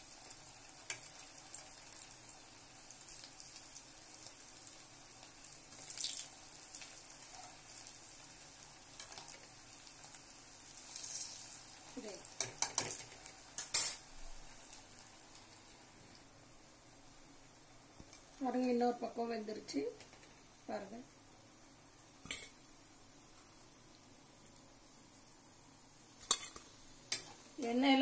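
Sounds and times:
food sizzling in oil: 0:00.0 - 0:28.0
metal tongs clinking on pan: 0:12.4 - 0:14.1, 0:26.2 - 0:27.3.

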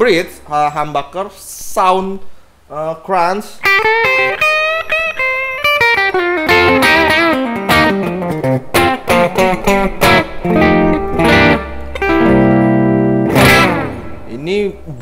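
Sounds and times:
electric guitar riffs: 0:03.6 - 0:15.0.

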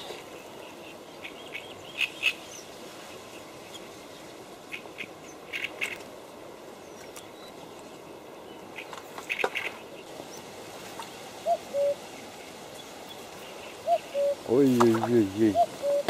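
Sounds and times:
steady reed-bed hiss: 0:00.0 - 0:16.0.

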